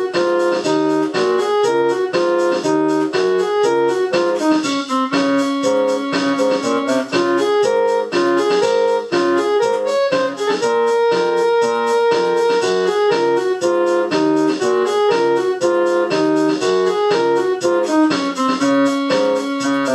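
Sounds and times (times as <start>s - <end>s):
keyboard music: 0.0s - 19.9s.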